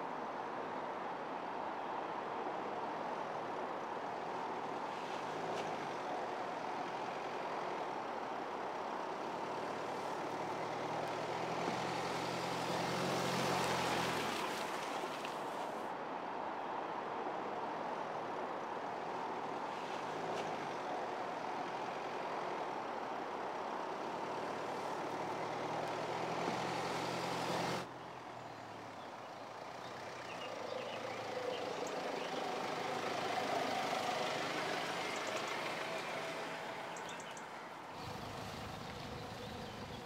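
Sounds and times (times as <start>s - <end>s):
outdoor background noise: 0.0s - 40.0s.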